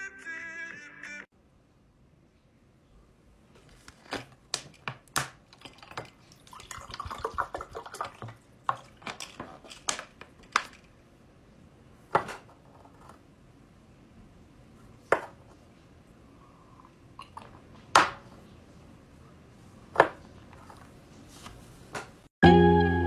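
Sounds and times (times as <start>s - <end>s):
water pouring into glass: 5.6s - 8.9s.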